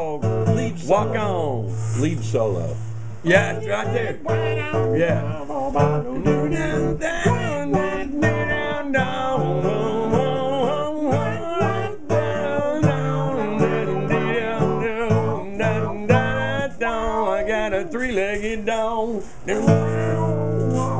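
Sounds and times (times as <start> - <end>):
strummed guitar chords: 0.0 - 20.9
lead guitar solo: 3.3 - 16.4.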